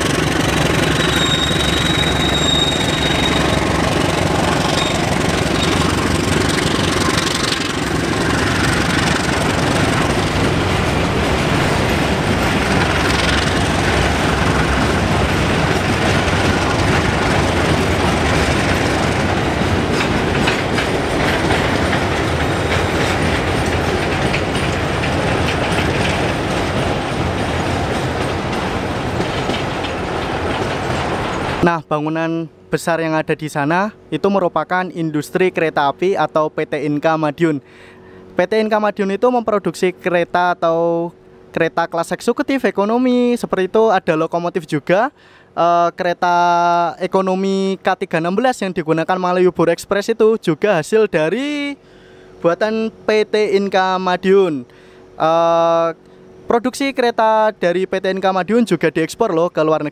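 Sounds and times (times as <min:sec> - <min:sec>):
train wheels clacking over rail joints: 0:00.0 - 0:31.7
diesel locomotive engine hum: 0:00.0 - 0:59.9.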